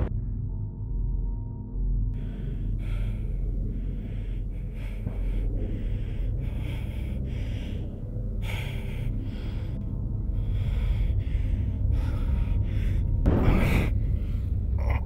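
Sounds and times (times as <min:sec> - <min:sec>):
steady low rumble: 0:00.0 - 0:15.0
man gasping and breathing hard: 0:02.2 - 0:15.0.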